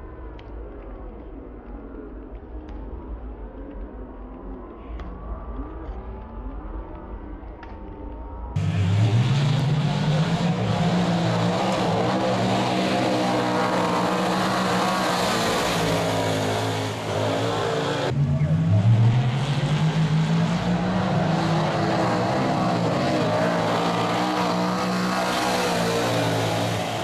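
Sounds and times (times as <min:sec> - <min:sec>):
race car engines running hard: 0:08.5 - 0:27.0
race car passing close: 0:08.6 - 0:27.0.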